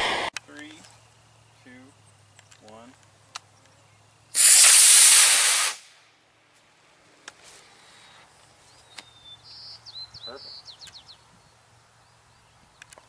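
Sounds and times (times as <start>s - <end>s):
rocket motor rushing hiss: 0.0s - 0.3s, 4.3s - 6.1s.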